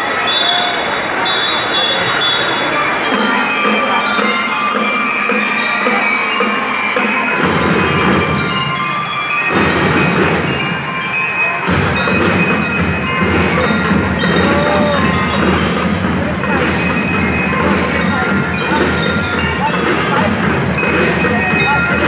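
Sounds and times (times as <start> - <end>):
bell lyres playing melody: 2.6 - 22.0
drum section: 2.9 - 22.0
heavy bass drumming: 11.6 - 22.0.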